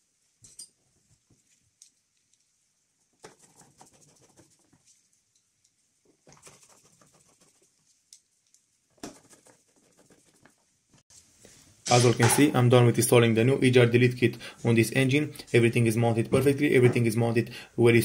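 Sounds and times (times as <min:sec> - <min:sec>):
faint scratching and clicking: 0:01.1 - 0:11.3.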